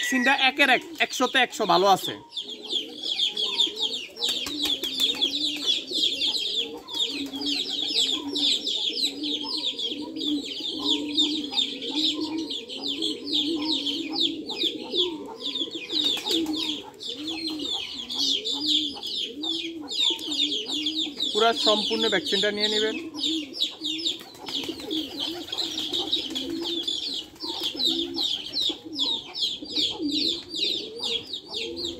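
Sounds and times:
pigeons cooing: 0:00.0 - 0:31.9
chicks peeping: 0:02.1 - 0:31.9.

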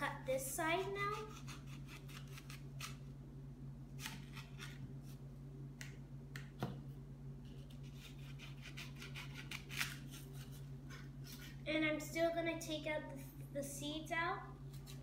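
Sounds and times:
steady low hum: 0:00.0 - 0:15.0
knife crunching through apple: 0:00.8 - 0:03.1, 0:04.0 - 0:05.2, 0:07.4 - 0:11.6, 0:14.7 - 0:15.0.

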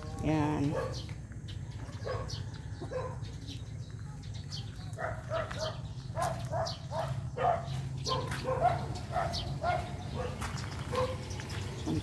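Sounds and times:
dog barking: 0:00.7 - 0:01.1, 0:01.8 - 0:03.3, 0:05.0 - 0:11.3.

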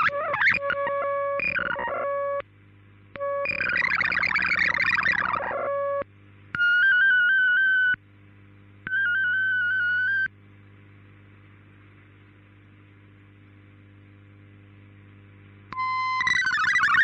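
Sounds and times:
radio tones stepping up and down: 0:00.0 - 0:02.4, 0:03.2 - 0:08.0, 0:08.9 - 0:10.3, 0:15.8 - 0:17.0
steady radio tone: 0:00.0 - 0:02.4, 0:03.2 - 0:06.0, 0:08.9 - 0:10.3
warbling data tones: 0:00.0 - 0:02.4, 0:03.2 - 0:06.0, 0:06.6 - 0:08.0, 0:08.9 - 0:10.3, 0:15.8 - 0:17.0
receiver hiss with low hum: 0:00.0 - 0:17.0.

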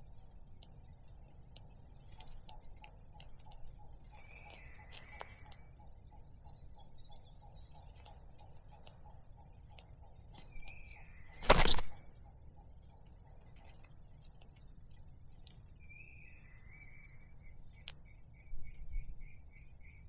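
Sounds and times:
soft steady ticking: 0:00.0 - 0:20.0
faint short chirps: 0:10.5 - 0:12.0
bird wings flapping in nest: 0:11.3 - 0:12.0.

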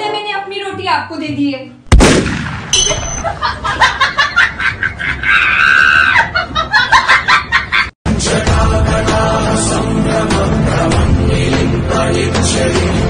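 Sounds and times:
rapid giggling laughter: 0:03.2 - 0:07.9.

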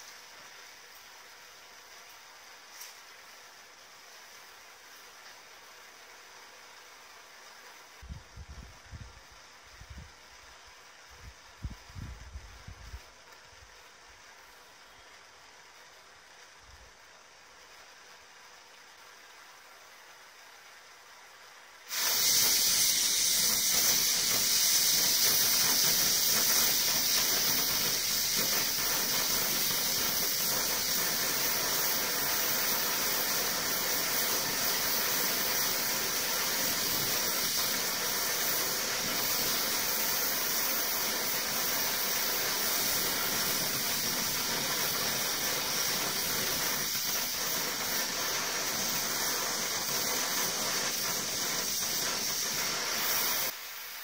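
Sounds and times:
blowtorch flame hissing: 0:21.9 - 0:54.0.

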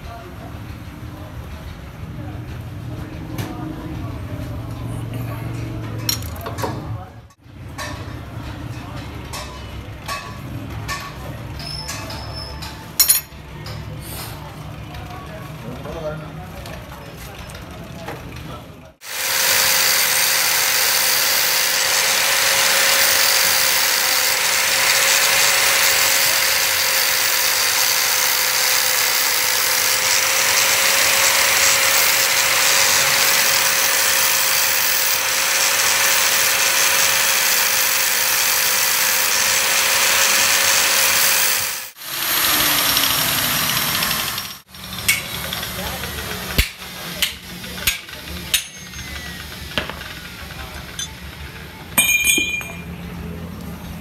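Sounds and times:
power tool hissing on metal: 0:19.0 - 0:47.9.

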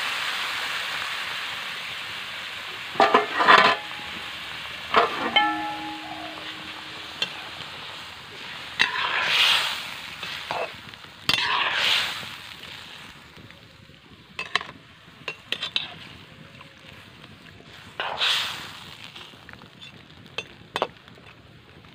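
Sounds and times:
food sizzling: 0:00.0 - 0:21.9
spatula scraping wok: 0:02.8 - 0:07.8, 0:08.4 - 0:12.3, 0:17.8 - 0:18.8.

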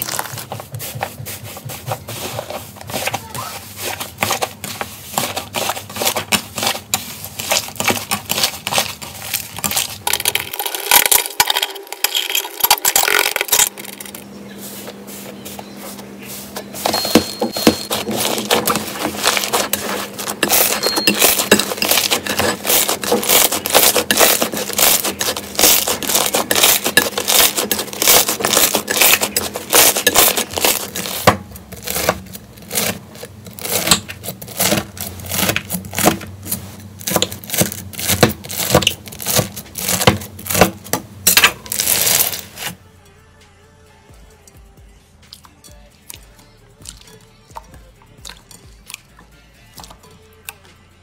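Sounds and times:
slime crackling and popping: 0:00.0 - 0:00.4, 0:41.4 - 0:42.7.

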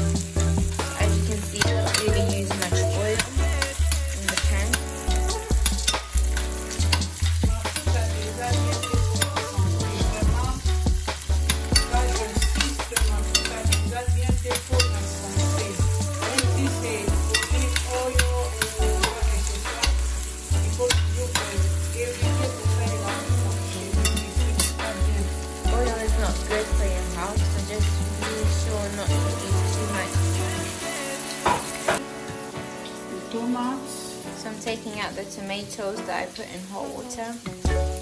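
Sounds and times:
onions sizzling in a pan: 0:00.0 - 0:38.0
metal spoon scraping a pan: 0:11.4 - 0:13.9, 0:24.0 - 0:25.0.

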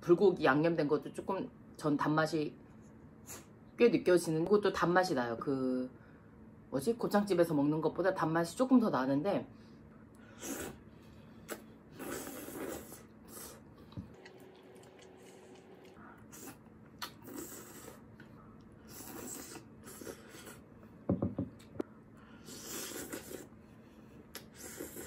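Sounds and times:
soft chewing: 0:11.4 - 0:20.7.

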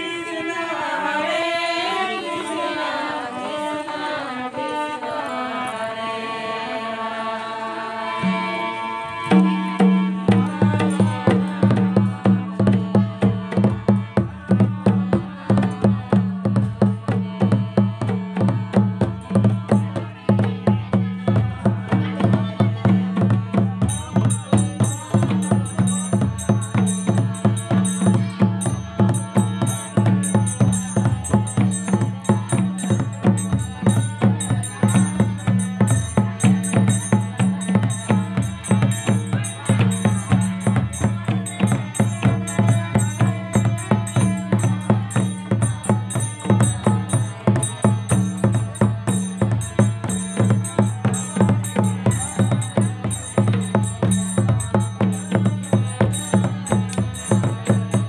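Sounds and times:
harmonium: 0:00.0 - 0:57.8
devotional singing: 0:00.0 - 0:58.0
drum beat: 0:09.2 - 0:58.0.

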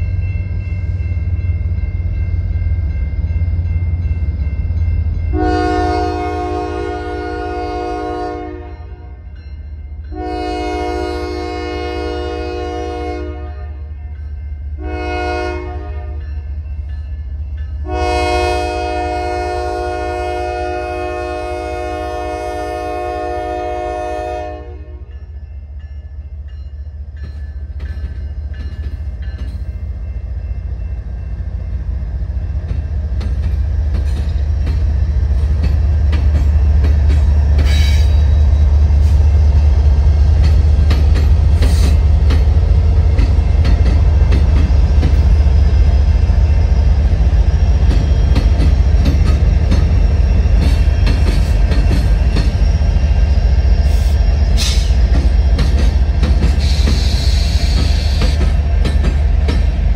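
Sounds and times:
train engine rumble: 0:00.0 - 0:59.9
locomotive air horn blasts: 0:05.3 - 0:09.2, 0:10.1 - 0:13.8, 0:14.8 - 0:16.2, 0:17.8 - 0:25.1
train wheel clatter: 0:26.5 - 0:59.9.

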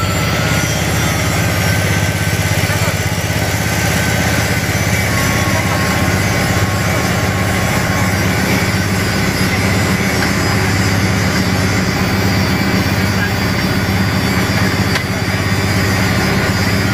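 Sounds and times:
diesel engine idling: 0:00.0 - 0:16.9.

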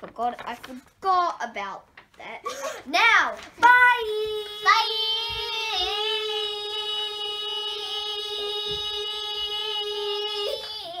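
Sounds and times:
child singing long note: 0:03.8 - 0:11.0.

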